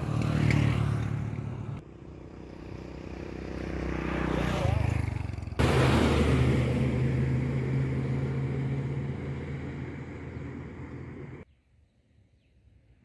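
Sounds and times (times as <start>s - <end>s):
low motor hum: 5.6s - 11.4s
rushing noise: 5.6s - 11.4s.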